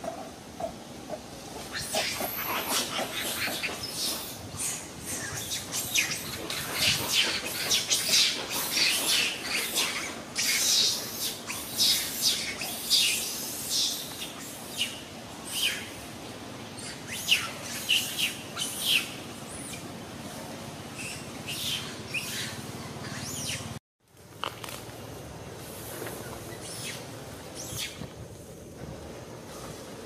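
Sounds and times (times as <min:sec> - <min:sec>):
high-pitched chirping animal calls: 0:01.6 - 0:15.9, 0:21.0 - 0:23.8.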